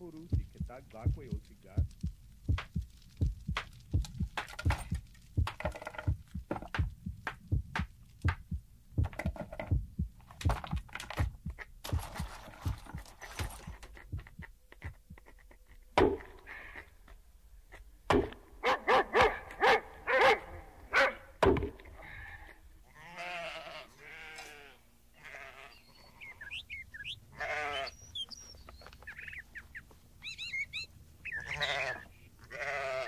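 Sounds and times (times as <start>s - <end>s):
dog barking: 18.6s - 21.3s.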